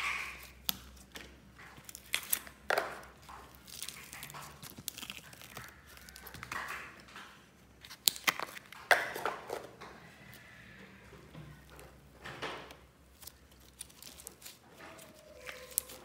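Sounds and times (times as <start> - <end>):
slime squelching: 0.0 - 16.0
slime clicking and popping: 1.8 - 7.1.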